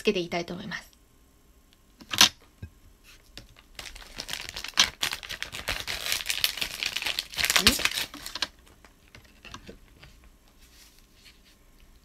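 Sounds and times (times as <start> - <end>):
plastic packet crinkling: 3.4 - 10.0.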